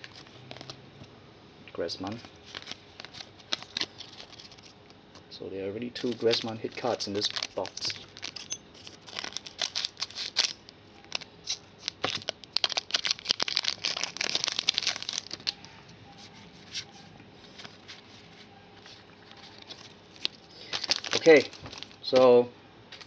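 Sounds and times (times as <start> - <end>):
foil wrapper crinkling and tearing: 0.0 - 0.8, 2.1 - 5.0, 5.8 - 15.7, 18.8 - 22.3
trading cards being handled: 0.0 - 1.1, 2.0 - 23.0.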